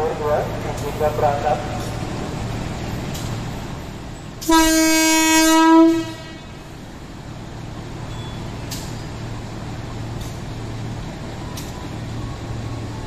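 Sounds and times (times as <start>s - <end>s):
train hum and rumble: 0.0s - 13.0s
train horn blast: 4.4s - 6.6s.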